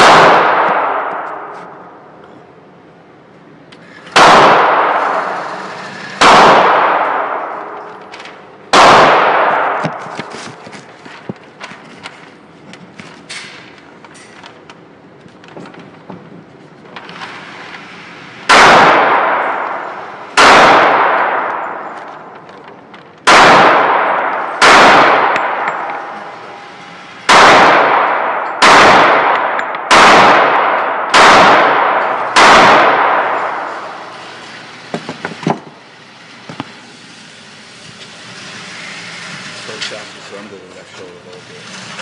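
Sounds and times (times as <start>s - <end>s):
gunshots echoing indoors: 0.0s - 2.2s, 3.9s - 11.2s, 18.4s - 22.6s, 23.2s - 36.4s.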